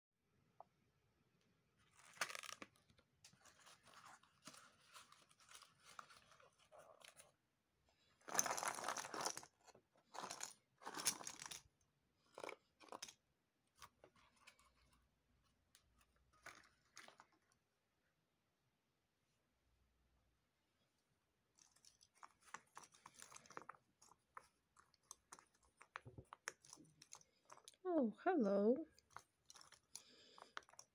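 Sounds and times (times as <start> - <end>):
puzzle pieces clattering onto mat: 10.1 - 11.6
puzzle pieces clicking: 28.9 - 30.9.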